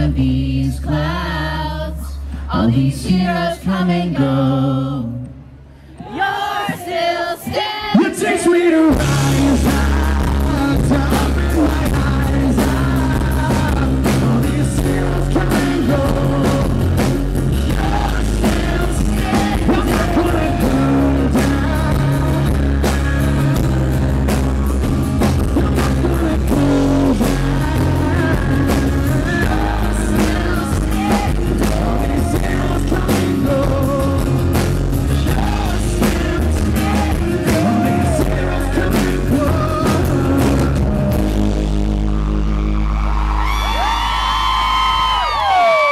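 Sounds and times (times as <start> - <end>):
man singing into microphone: 0.0 - 5.4, 7.9 - 17.1, 17.7 - 24.0, 25.4 - 41.5
strummed acoustic guitars: 8.9 - 41.7.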